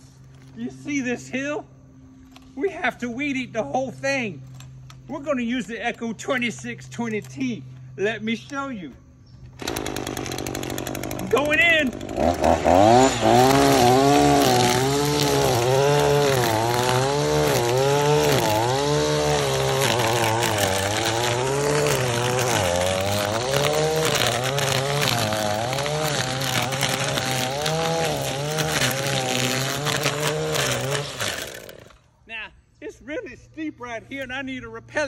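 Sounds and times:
string trimmer revving: 0:09.5 - 0:32.2.

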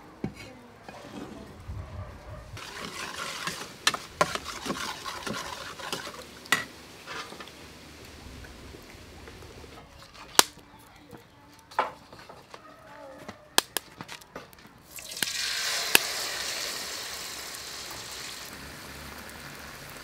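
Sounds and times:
wok hissing and crackling: 0:02.6 - 0:10.5, 0:14.9 - 0:20.0.

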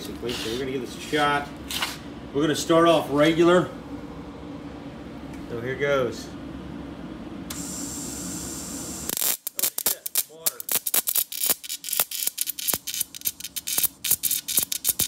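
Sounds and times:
steady hum with hiss: 0:00.0 - 0:15.0
electrode sparking and crackling: 0:09.1 - 0:15.0.

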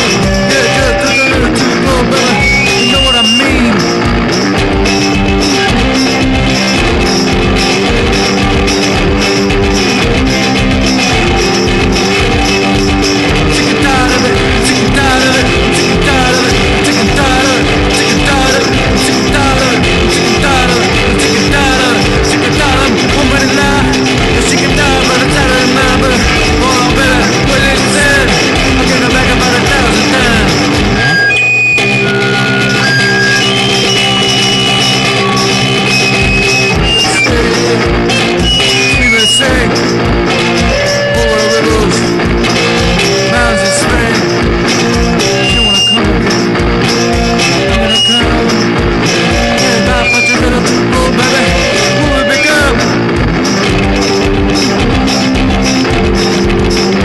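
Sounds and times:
garage punk rock song: 0:00.0 - 0:57.0
gliding guitar lead lines: 0:00.0 - 0:57.0.

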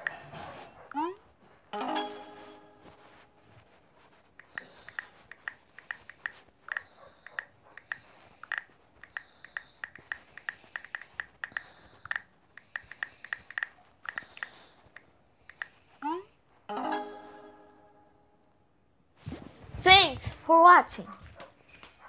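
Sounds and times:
taps on smartphone keyboard: 0:04.4 - 0:15.8.

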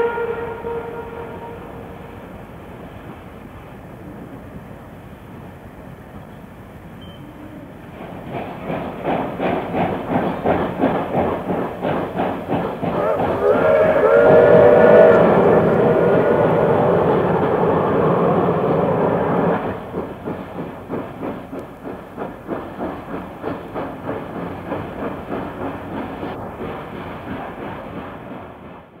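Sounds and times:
steam whistle: 0:00.0 - 0:02.3, 0:13.0 - 0:19.6
steam locomotive exhaust beats: 0:00.0 - 0:29.0.

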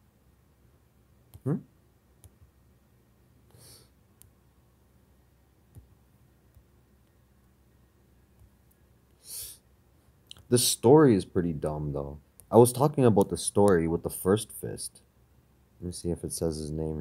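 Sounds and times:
soft breath: 0:03.5 - 0:04.0.

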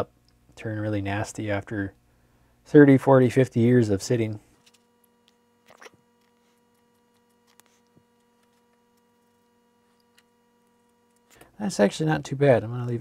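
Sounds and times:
faint electrical hum: 0:00.0 - 0:13.0
faint small clicks: 0:04.6 - 0:09.1.

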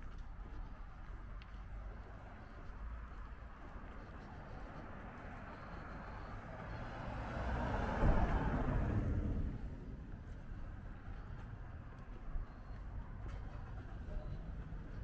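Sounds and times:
low street background: 0:00.0 - 0:15.0
car driving past: 0:05.1 - 0:10.2.

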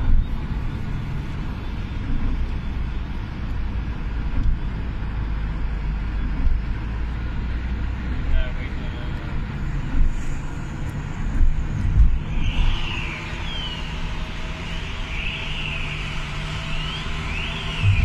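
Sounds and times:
car road rumble: 0:00.0 - 0:18.0.

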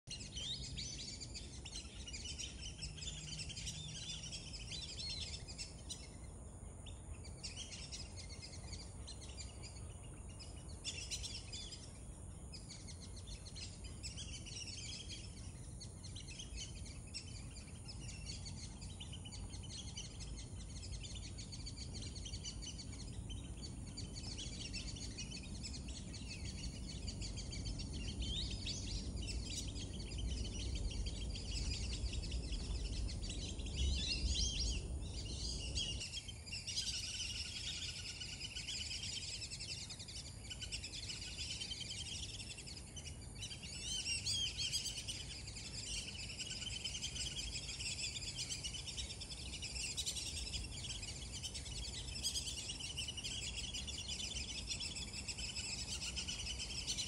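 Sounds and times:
low steady rumble: 0:17.4 - 0:36.1.

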